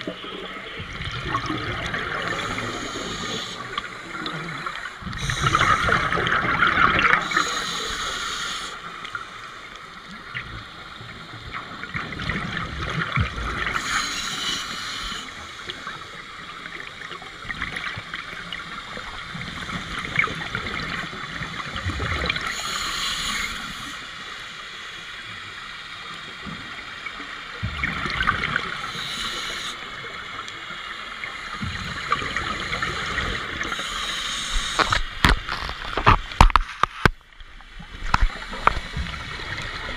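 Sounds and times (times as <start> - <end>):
underwater exhaust bubbles: 0.0 - 39.9
underwater water noise: 0.0 - 39.9.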